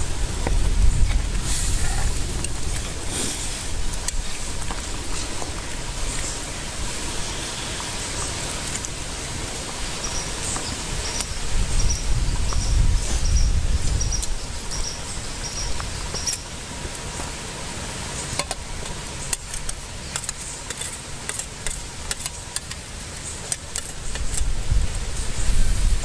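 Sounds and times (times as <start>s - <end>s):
low rumble: 0.0s - 9.9s
broth simmering with hiss: 0.0s - 26.0s
insects chirping: 0.0s - 26.0s
wood fire crackling: 0.0s - 26.0s.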